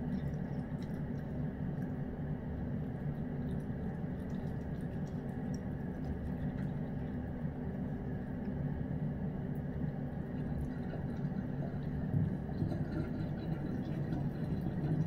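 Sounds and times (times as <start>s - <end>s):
cat chewing and licking: 0.0s - 7.9s
low background hum: 0.0s - 15.0s.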